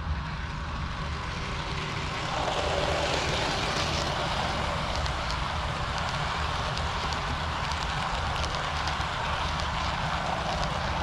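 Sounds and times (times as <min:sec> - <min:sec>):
model train rolling on track: 0:00.0 - 0:11.0.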